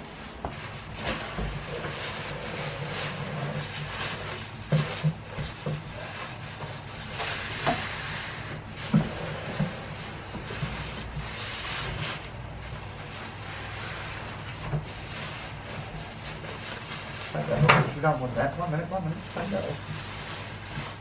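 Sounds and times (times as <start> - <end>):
cardboard scraping: 0.0 - 21.0
plastic wrapping rustling: 0.0 - 21.0.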